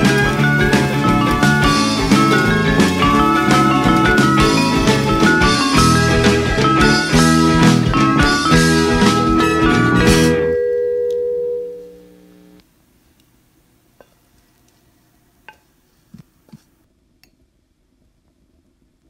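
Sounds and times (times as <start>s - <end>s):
guitar background music: 0.0s - 12.6s.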